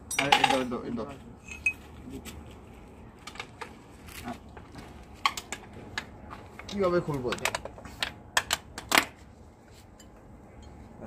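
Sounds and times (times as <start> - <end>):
hand tools clinking on metal: 0.0 - 1.8.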